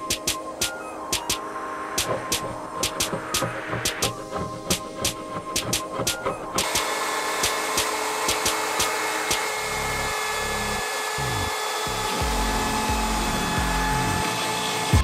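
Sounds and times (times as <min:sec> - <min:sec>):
router cutting wood: 0:06.6 - 0:15.0.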